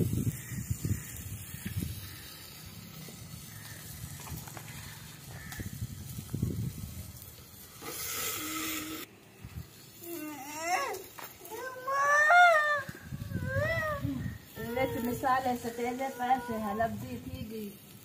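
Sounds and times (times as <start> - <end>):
fire hissing: 0.0 - 18.0.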